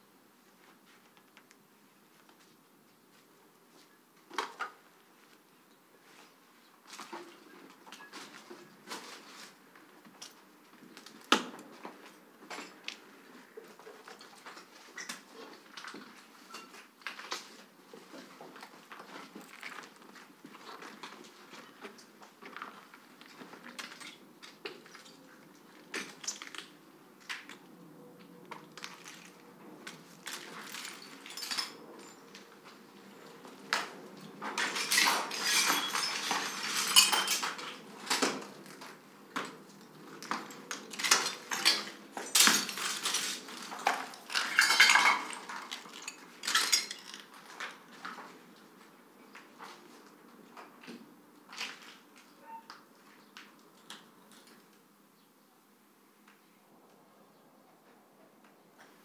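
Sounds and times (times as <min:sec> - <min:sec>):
dishes clinking and clattering: 0:34.6 - 0:37.7, 0:44.3 - 0:47.2.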